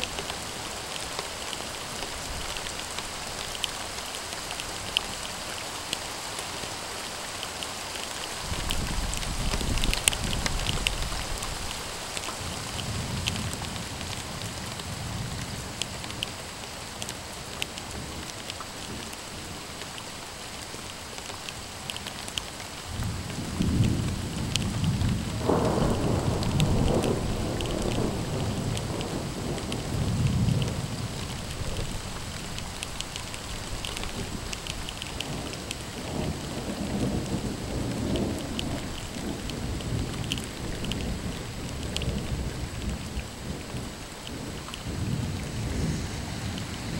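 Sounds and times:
raindrops ticking close by: 0:00.0 - 0:46.9
steady rain: 0:00.0 - 0:46.9
thunder rumbling: 0:22.9 - 0:32.6, 0:33.4 - 0:46.9.

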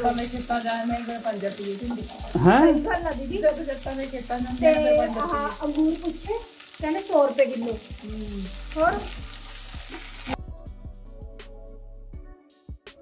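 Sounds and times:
vegetables sizzling in a pan: 0:00.0 - 0:10.4.

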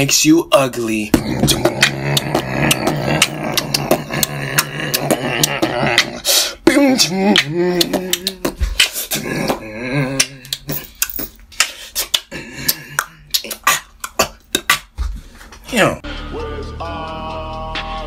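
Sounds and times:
beatboxing clicks: 0:01.2 - 0:10.7, 0:11.5 - 0:15.0.

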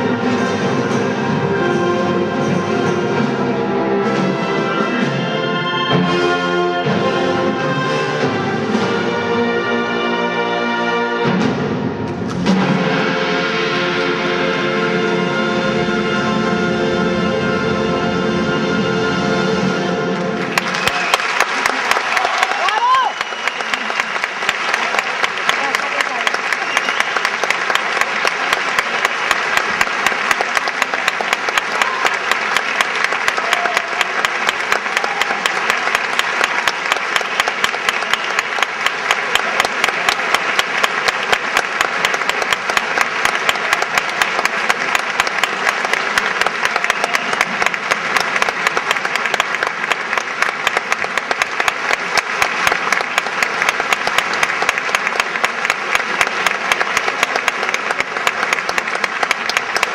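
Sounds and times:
audience applauding: 0:20.2 - 0:59.9.

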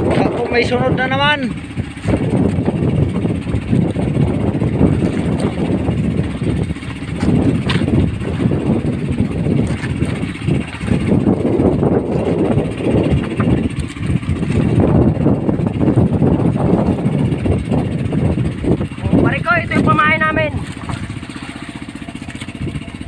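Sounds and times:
boat engine rumbling: 0:00.0 - 0:23.0.

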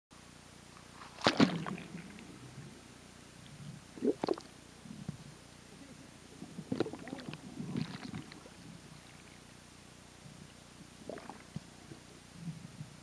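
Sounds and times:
underwater sloshing and bubbling: 0:01.0 - 0:13.0
underwater knocks and gurgles: 0:03.6 - 0:05.2, 0:06.4 - 0:08.8, 0:11.0 - 0:11.8.

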